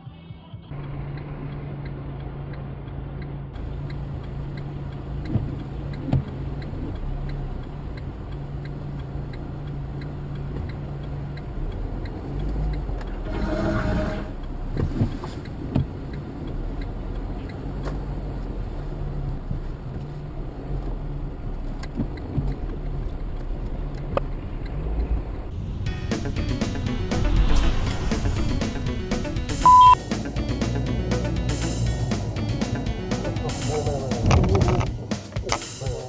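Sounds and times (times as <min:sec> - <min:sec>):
car engine and road hum: 0:00.0 - 0:36.0
light ticking: 0:00.7 - 0:13.2, 0:14.3 - 0:25.5
rushing sound of passing vehicle: 0:23.4 - 0:29.7.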